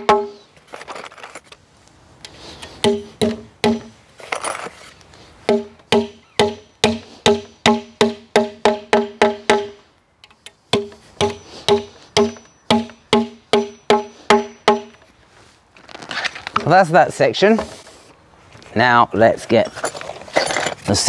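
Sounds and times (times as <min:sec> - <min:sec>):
hammer striking nails in metal: 0:00.0 - 0:00.4, 0:02.8 - 0:03.9, 0:10.7 - 0:15.0.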